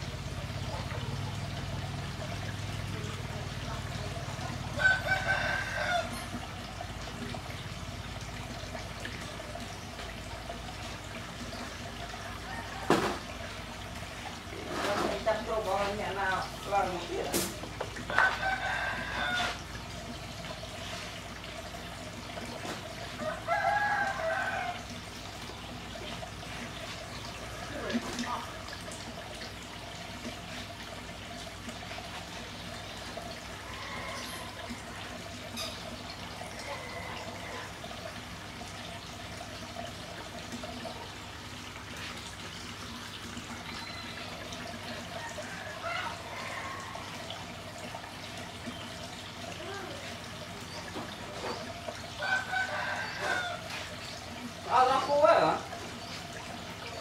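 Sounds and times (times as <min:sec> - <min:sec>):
running water trickling: 0:00.0 - 0:57.0
rooster crowing: 0:04.8 - 0:06.3, 0:18.1 - 0:19.6, 0:23.2 - 0:24.9, 0:33.7 - 0:34.6, 0:36.6 - 0:37.7, 0:45.2 - 0:47.4, 0:52.2 - 0:53.8.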